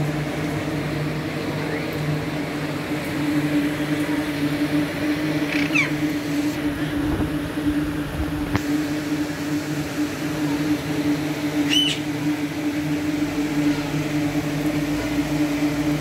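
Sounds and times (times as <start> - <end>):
parakeet call: 5.4 - 6.1, 11.6 - 12.1.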